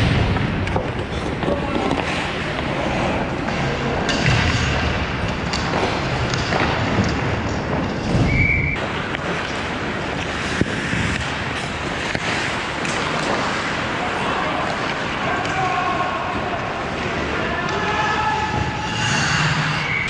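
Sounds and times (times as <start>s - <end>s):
skates rushing on ice: 0.0s - 20.0s
sticks and puck clicking: 3.4s - 13.9s.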